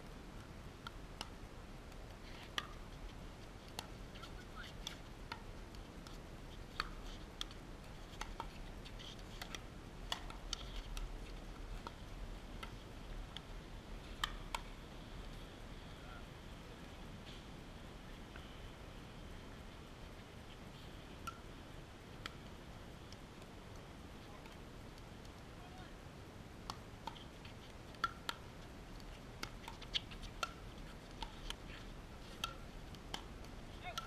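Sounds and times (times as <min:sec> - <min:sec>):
paddles hitting pickleball: 0:02.0 - 0:02.8, 0:03.7 - 0:12.0, 0:14.1 - 0:14.7, 0:26.6 - 0:34.0.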